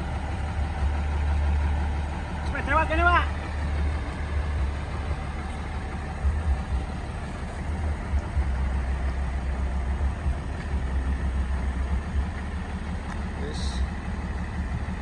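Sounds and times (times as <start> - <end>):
truck diesel engine rumbling: 0.0 - 15.0.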